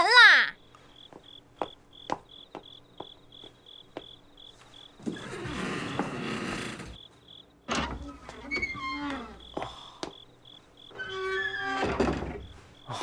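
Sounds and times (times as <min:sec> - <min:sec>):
crickets chirping: 0:00.0 - 0:13.0
glass doors scraping shut: 0:05.0 - 0:07.0, 0:07.7 - 0:09.4, 0:10.9 - 0:12.6.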